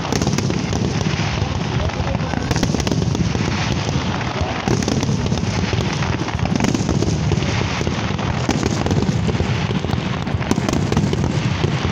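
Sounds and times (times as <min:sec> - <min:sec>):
fireworks crackling and banging: 0:00.0 - 0:11.9.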